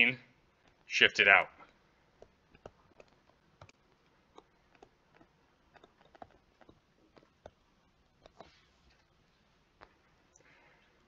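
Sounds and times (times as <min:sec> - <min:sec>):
stylus tapping on tablet screen: 0:02.1 - 0:08.6.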